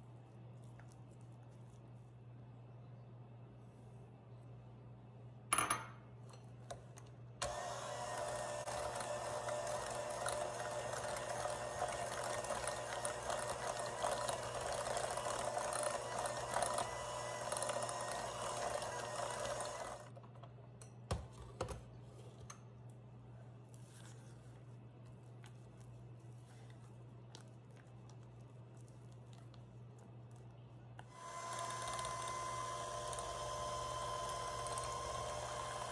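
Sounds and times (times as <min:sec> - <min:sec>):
hand mixer running: 0:07.4 - 0:20.1, 0:31.1 - 0:35.9.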